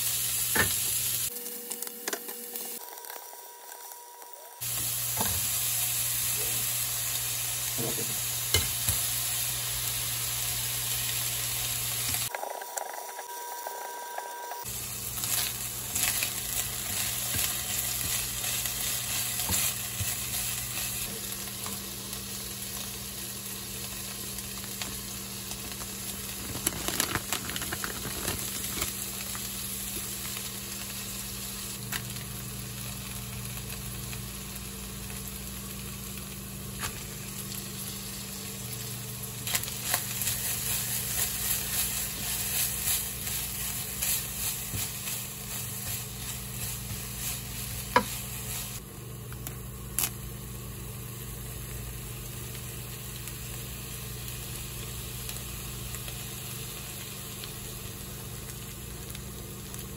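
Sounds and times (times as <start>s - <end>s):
food sizzling in a frying pan: 0.0s - 13.8s, 14.6s - 59.9s
plastic packet crinkling: 25.7s - 29.0s
spatula stirring and scraping: 39.8s - 48.8s.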